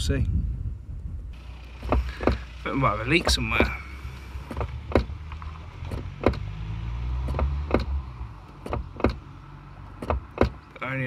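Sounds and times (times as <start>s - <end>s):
wind buffeting microphone: 0.0s - 1.4s.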